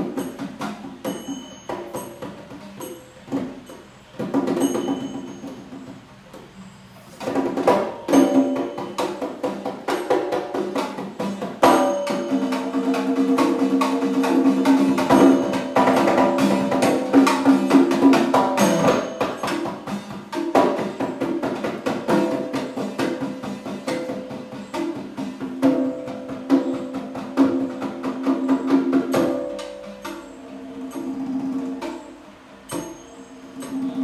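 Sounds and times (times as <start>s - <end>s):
ringing pitched drum tone: 0.0s - 6.0s, 7.6s - 34.0s
hand drums in fast rhythm: 0.0s - 6.4s, 7.2s - 34.0s.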